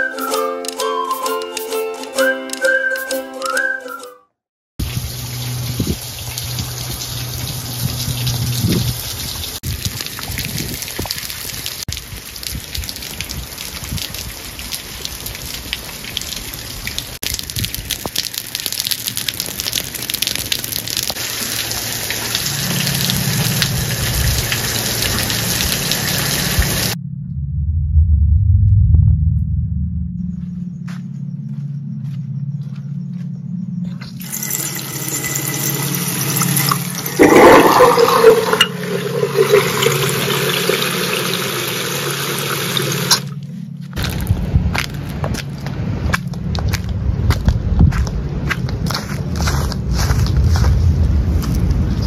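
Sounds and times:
heavy rain splashing on paving: 0:04.8 - 0:27.0
low rumble: 0:26.5 - 0:34.2, 0:43.3 - 0:52.0.

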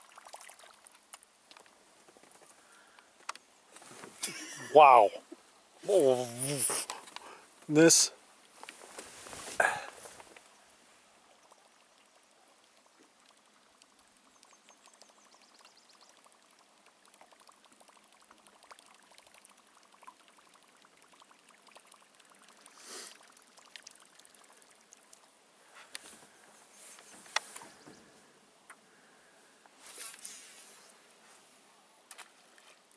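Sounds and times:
lure gurgling and splashing: 0:00.0 - 0:01.2, 0:11.2 - 0:25.4.

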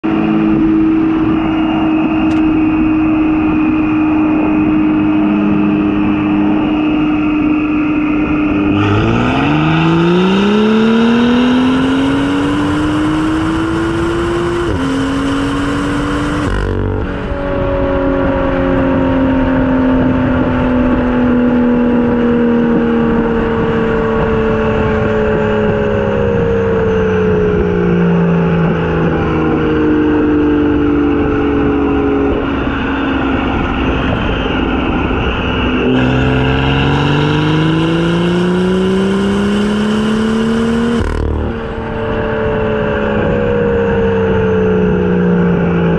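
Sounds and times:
steady car tone: 0:00.0 - 0:19.4, 0:31.5 - 0:45.4
road and wind noise: 0:00.0 - 0:45.9.

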